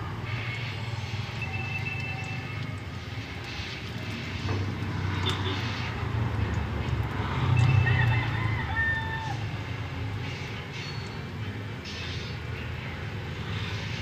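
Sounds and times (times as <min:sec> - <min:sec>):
low engine rumble: 0:00.0 - 0:14.0.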